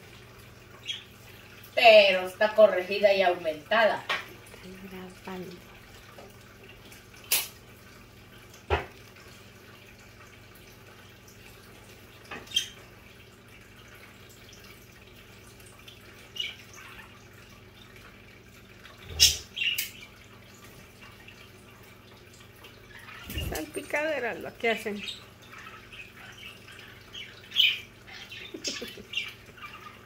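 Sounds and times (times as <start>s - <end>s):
birds splashing water: 0.0s - 30.0s
wing flutters: 23.0s - 23.9s.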